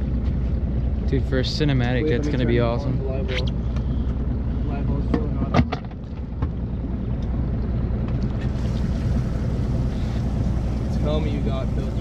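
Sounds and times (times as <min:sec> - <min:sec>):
boat motor idling: 0:06.2 - 0:12.0.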